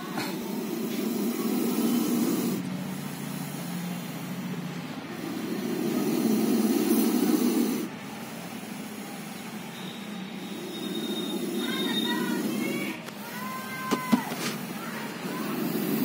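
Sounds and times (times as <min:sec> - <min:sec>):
cobra hissing: 0:00.0 - 0:16.0.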